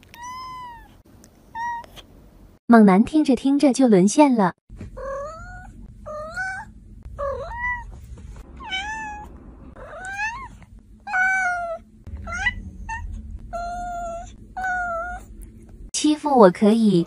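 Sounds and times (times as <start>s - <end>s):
cat meowing: 0.1s - 1.0s, 5.0s - 7.9s, 8.6s - 15.3s.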